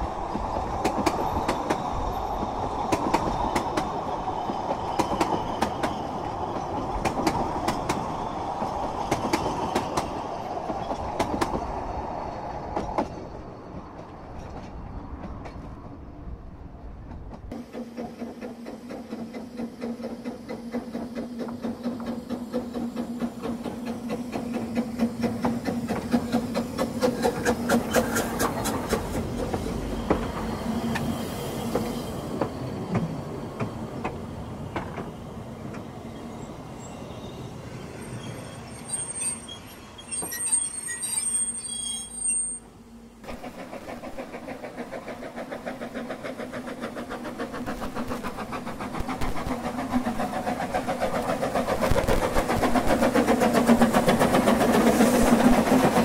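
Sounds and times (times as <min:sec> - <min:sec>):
steam train passing: 0:00.0 - 0:56.0
wheel squeals: 0:36.1 - 0:42.8.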